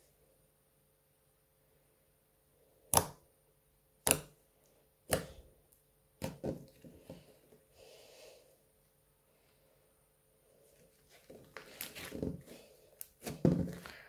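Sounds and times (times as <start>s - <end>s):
fingers popping wet slime: 2.9s - 3.2s, 4.0s - 4.4s, 5.1s - 5.4s.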